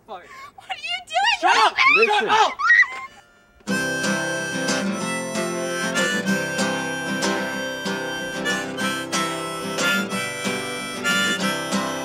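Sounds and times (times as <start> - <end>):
harmonica: 2.6 - 12.0
strummed acoustic guitar: 3.7 - 12.0.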